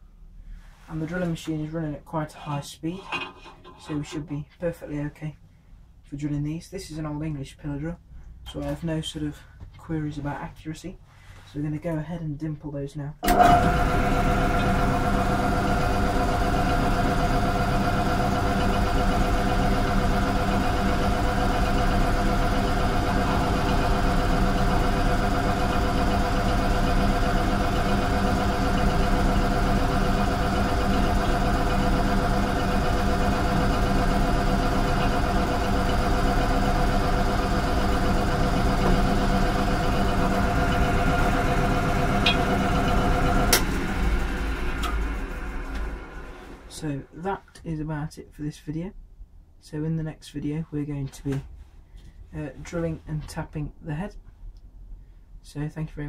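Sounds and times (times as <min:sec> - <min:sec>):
pillar drill whining: 0:13.2 - 0:46.8.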